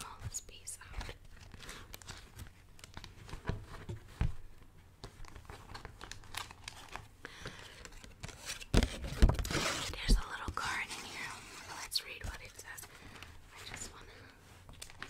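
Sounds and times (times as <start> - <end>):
wax wrap package crinkling: 1.0 - 3.4, 5.2 - 10.2.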